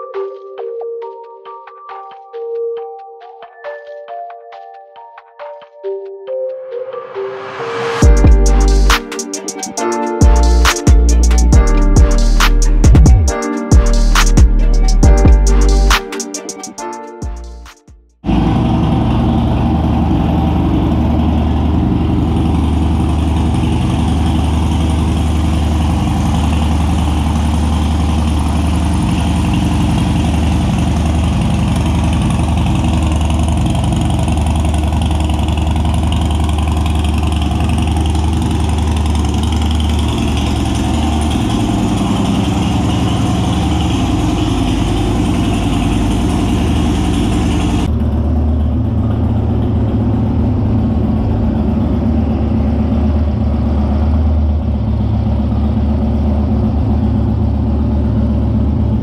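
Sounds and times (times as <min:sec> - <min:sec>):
motorcycle engine idling: 0:18.3 - 0:59.0.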